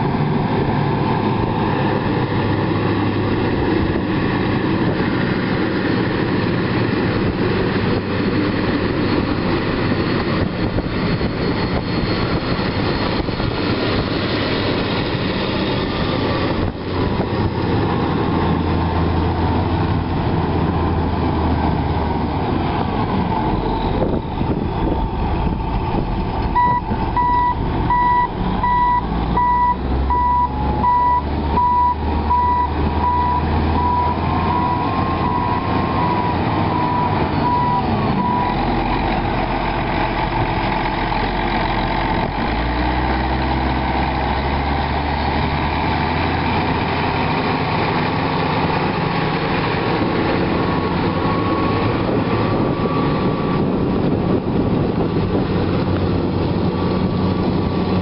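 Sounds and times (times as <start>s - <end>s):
diesel engine running: 0.0s - 58.0s
reverse alarm beeping: 26.6s - 38.6s.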